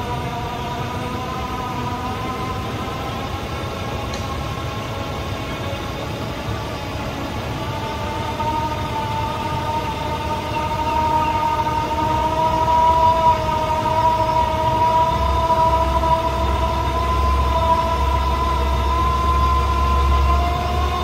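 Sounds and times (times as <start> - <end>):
electric winch motor whine: 0.0 - 21.0
low hum: 0.0 - 21.0.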